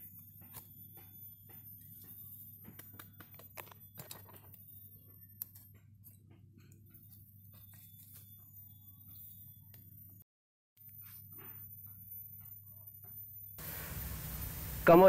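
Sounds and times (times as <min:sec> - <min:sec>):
low hum: 0:13.6 - 0:15.0.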